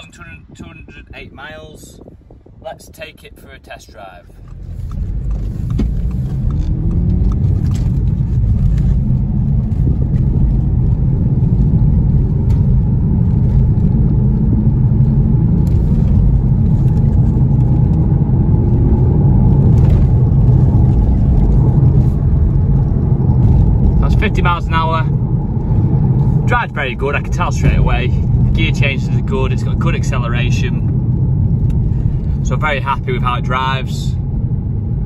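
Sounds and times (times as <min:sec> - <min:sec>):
road noise: 0:00.0 - 0:35.0
car engine accelerating: 0:04.3 - 0:35.0.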